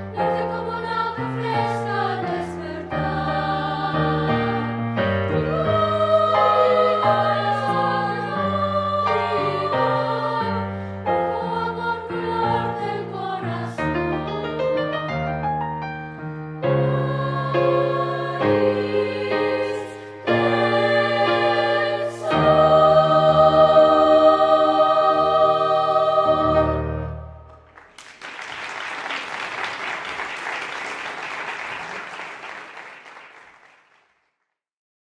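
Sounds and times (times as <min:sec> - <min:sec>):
choir singing with piano: 0:00.0 - 0:27.7
audience applause: 0:27.7 - 0:34.1.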